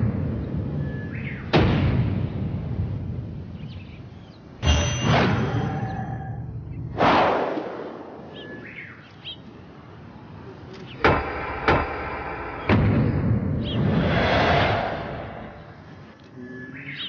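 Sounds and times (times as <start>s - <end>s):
birds chirping faintly: 0.0s - 1.6s, 3.3s - 7.0s, 8.2s - 14.0s, 15.2s - 17.0s
sharp ringing impacts: 4.6s - 6.7s
whooshing swell: 13.6s - 16.1s.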